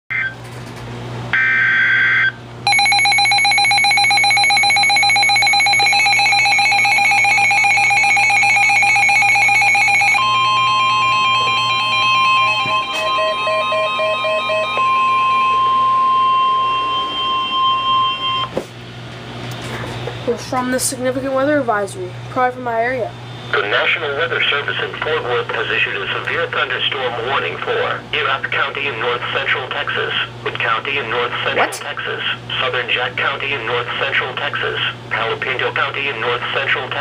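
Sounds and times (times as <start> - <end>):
pulsing electronic alarm beeps: 1.4 - 18.5
steady warning tone: 1.4 - 18.6.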